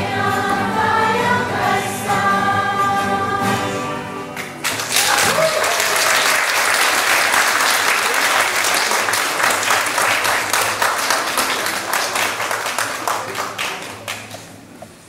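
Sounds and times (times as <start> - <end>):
audience applauding: 4.4 - 14.7.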